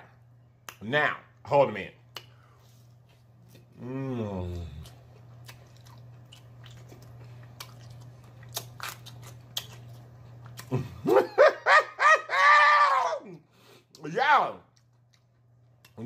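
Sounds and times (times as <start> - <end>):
faint low hum: 0.0 - 16.0
person chewing close to microphone: 4.4 - 10.8, 14.7 - 16.0
high-pitched laughing whoops: 11.0 - 13.4.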